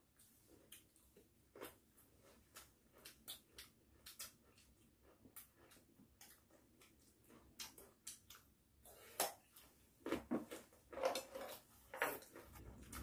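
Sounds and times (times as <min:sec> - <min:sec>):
chewing crunches: 0:00.5 - 0:08.5.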